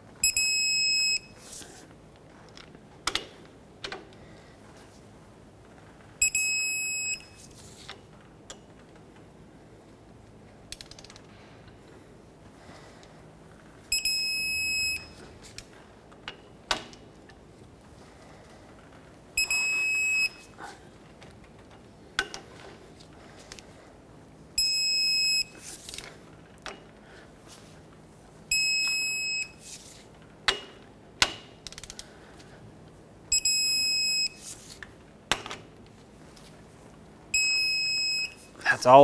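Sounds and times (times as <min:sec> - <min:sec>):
torque wrench beeping: 0:13.9 - 0:15.2, 0:19.4 - 0:20.4, 0:33.3 - 0:34.4.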